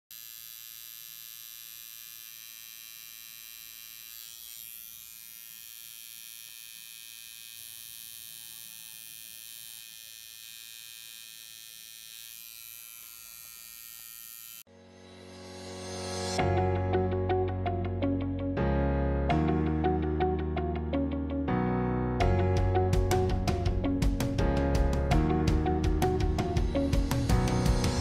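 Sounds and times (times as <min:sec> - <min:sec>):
tattoo machine buzzing: 0:00.1 - 0:14.7.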